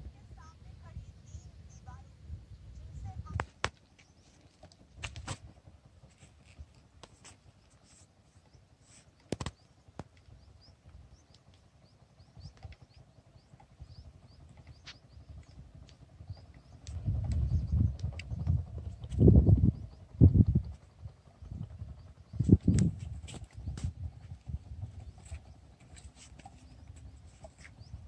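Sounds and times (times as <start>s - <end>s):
small bird chirping: 0.4s - 5.0s, 7.2s - 28.0s
sharp clicks and knocks: 9.2s - 10.3s.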